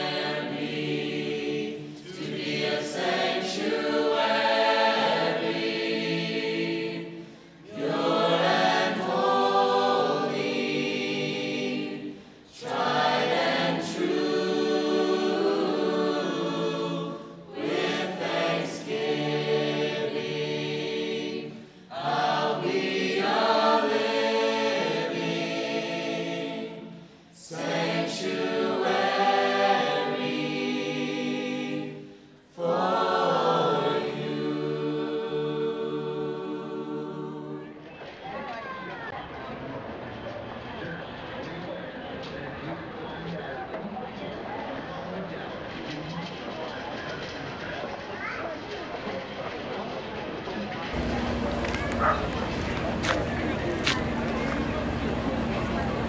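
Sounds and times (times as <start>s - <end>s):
choir singing: 0.0s - 39.0s, 50.9s - 56.0s.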